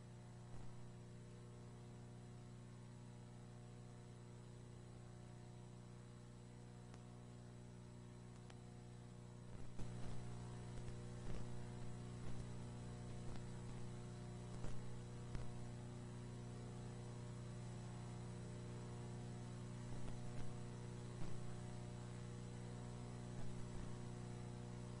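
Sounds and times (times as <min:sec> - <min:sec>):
electrical mains hum: 0:00.0 - 0:25.0
sharp clicks and crackles: 0:08.3 - 0:08.6, 0:09.5 - 0:15.6.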